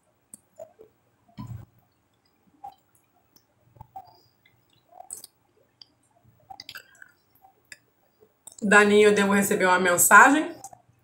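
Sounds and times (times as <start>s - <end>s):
person chewing and lip-smacking: 3.8s - 7.1s.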